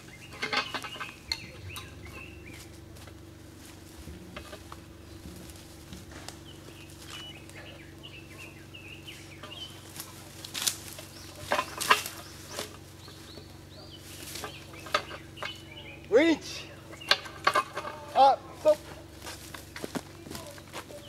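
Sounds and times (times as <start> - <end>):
bird chirps: 0.0 - 2.8, 6.4 - 10.2, 11.0 - 17.5
steady low hum: 0.0 - 21.0
metal anchor knocks and scrapes: 0.2 - 2.2, 17.0 - 18.1.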